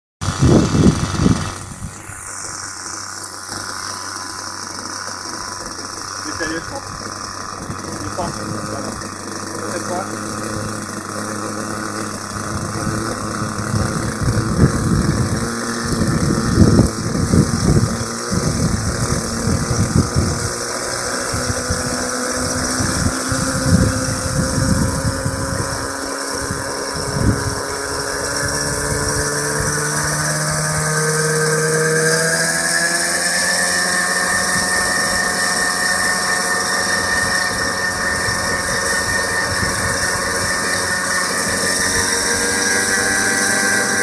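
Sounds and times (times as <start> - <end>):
wind buffeting microphone: 0.2 - 2.3, 6.3 - 33.0, 33.7 - 44.0
model helicopter engine running: 0.2 - 44.0.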